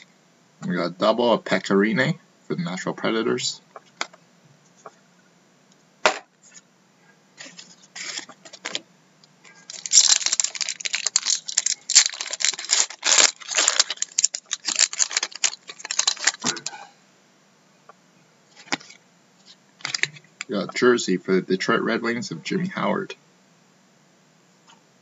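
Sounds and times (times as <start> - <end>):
foil wrapper crinkling and tearing: 7.4 - 8.8, 9.5 - 16.7.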